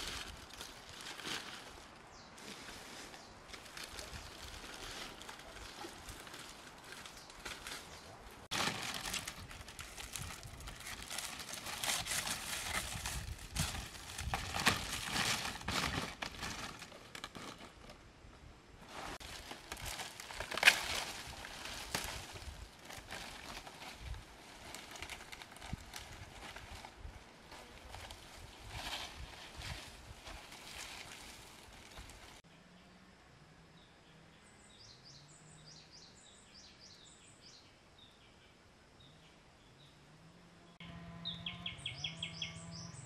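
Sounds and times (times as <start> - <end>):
dry material rustling and crackling: 0.0 - 18.0, 18.8 - 32.4.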